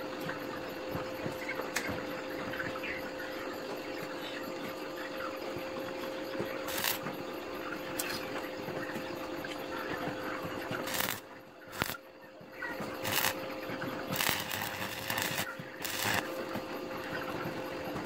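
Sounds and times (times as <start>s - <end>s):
constant hum: 0.0s - 18.0s
welding arc crackling: 6.7s - 7.0s, 10.8s - 12.0s, 12.8s - 16.3s.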